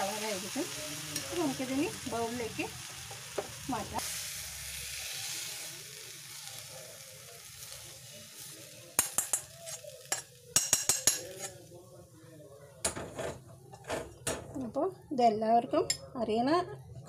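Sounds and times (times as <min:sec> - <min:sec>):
spoon clinking against pan and bowl: 0:09.0 - 0:11.6, 0:15.9 - 0:16.1.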